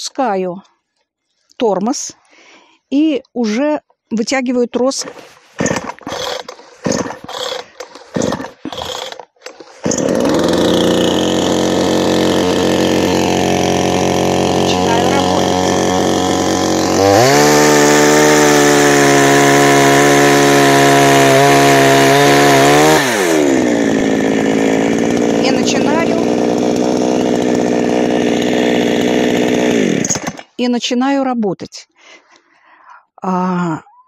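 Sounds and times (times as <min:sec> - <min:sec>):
starter cord pulls: 0:04.8 - 0:30.6
chainsaw engine running: 0:04.9 - 0:30.5.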